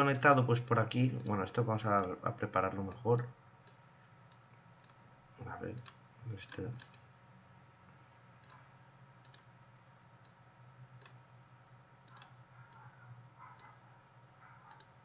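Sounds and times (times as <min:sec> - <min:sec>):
low room hum: 0:00.0 - 0:15.0
computer mouse clicks: 0:08.4 - 0:08.6, 0:09.2 - 0:09.5, 0:12.0 - 0:13.8, 0:14.6 - 0:15.0.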